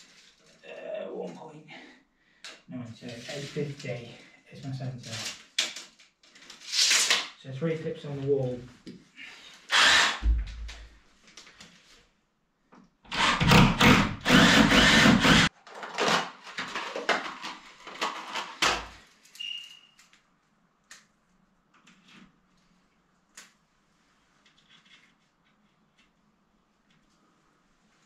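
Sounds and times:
power drill boring into wall: 9.7 - 10.4, 13.1 - 15.5
brief beep: 19.4 - 20.0.

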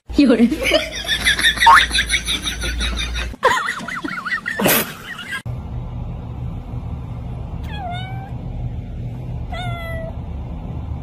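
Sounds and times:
steady low hum: 0.1 - 11.0
cat meowing: 7.6 - 8.4, 9.5 - 10.2.

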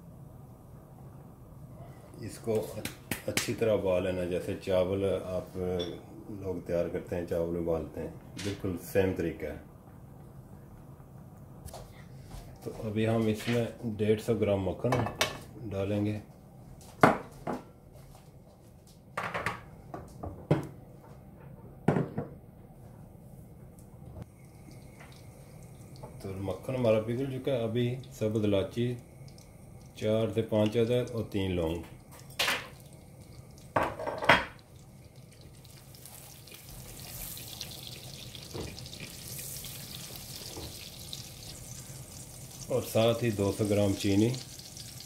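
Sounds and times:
butter sizzling in a pan: 31.3 - 45.0
spatula stirring: 34.6 - 45.0.

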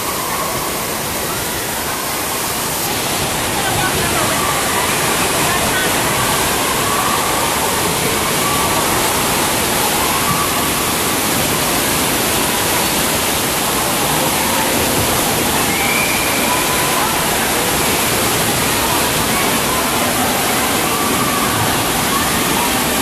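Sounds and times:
water rushing down troughs: 0.0 - 23.0.

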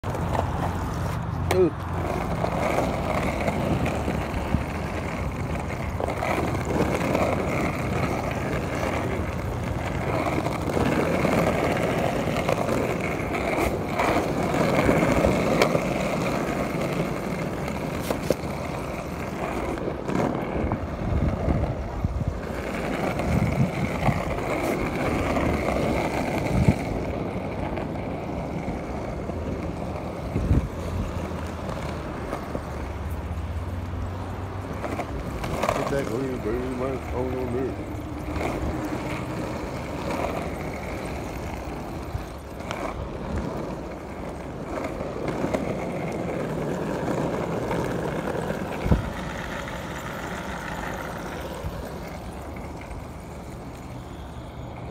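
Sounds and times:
skateboard wheels rolling on asphalt: 0.0 - 54.9
wheels clicking over cracks: 0.0 - 54.9.

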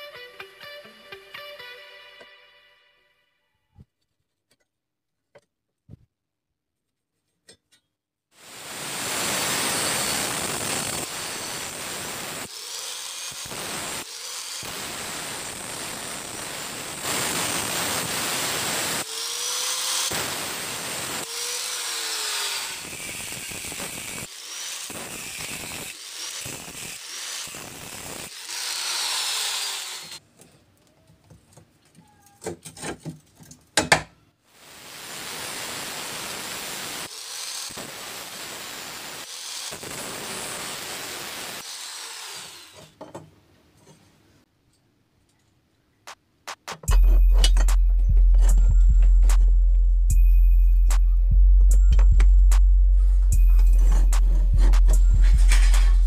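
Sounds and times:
angle grinder cutting steel: 8.4 - 30.2, 35.0 - 43.0, 52.4 - 56.0.

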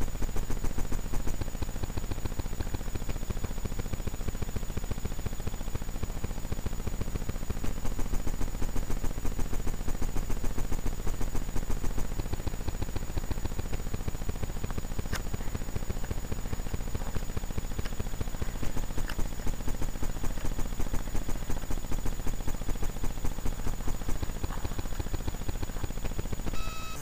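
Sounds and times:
faint high whine: 22.3 - 27.0.

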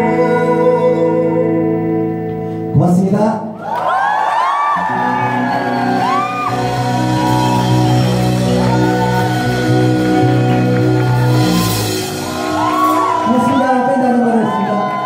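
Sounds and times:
audience whooping and shouting: 3.6 - 15.0
rock band holding a chord: 4.8 - 15.0.

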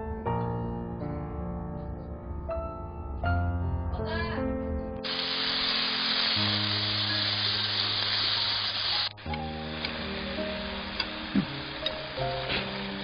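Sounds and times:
background music with held notes: 0.0 - 13.0
meat sizzling in frying pan: 5.0 - 13.0.

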